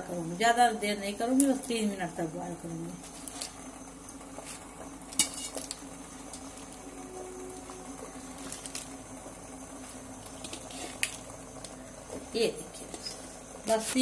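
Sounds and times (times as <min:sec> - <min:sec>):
steady low hum: 0:00.0 - 0:14.0
leaves dropping into boiling water: 0:08.2 - 0:11.8.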